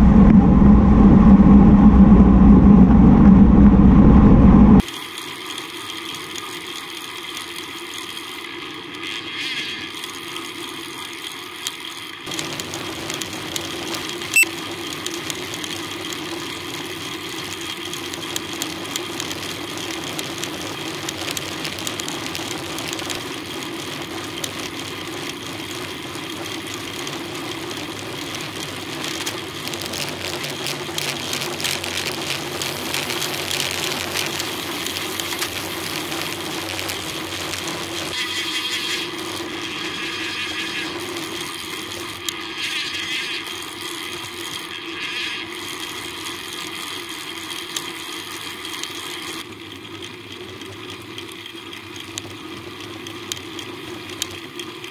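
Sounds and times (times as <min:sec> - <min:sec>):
low hum: 0:00.0 - 0:04.8
rushing wind: 0:00.0 - 0:04.8
bicycle tyres on road: 0:00.0 - 0:54.9.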